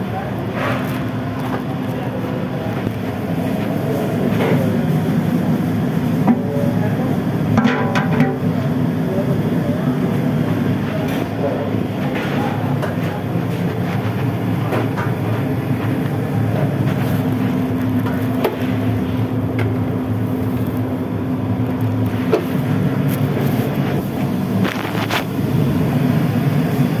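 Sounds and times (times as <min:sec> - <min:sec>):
kitchen equipment rumble: 0:00.0 - 0:27.0.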